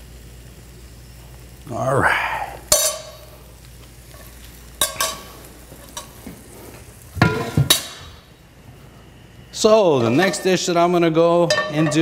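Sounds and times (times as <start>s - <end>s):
metal spoon clinking against pan: 2.7s - 3.2s, 4.8s - 6.1s, 11.5s - 12.0s
metal kitchenware clattering: 4.8s - 6.2s, 7.2s - 8.2s, 11.5s - 12.0s.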